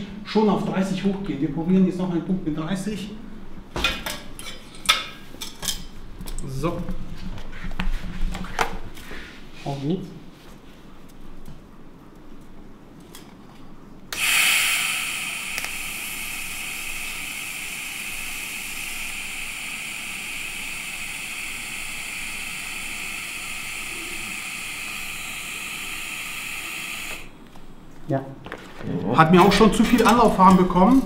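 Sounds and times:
welding arc hissing and whining: 14.1 - 27.7.

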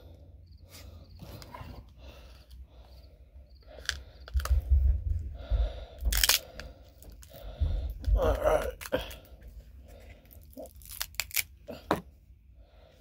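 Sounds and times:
lemongrass leaves tearing: 6.1 - 6.6, 10.3 - 11.6.

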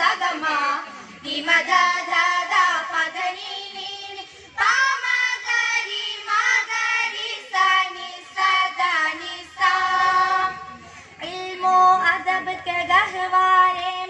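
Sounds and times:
girls singing in unison: 0.0 - 14.0.

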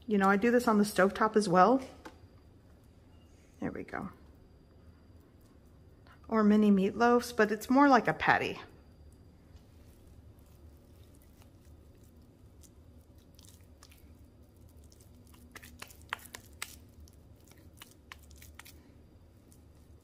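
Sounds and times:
wet squishing of meat: 10.0 - 20.0.

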